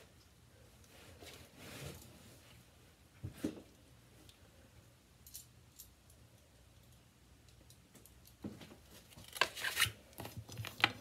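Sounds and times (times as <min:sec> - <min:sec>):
crinkling and tearing: 0:08.9 - 0:11.0.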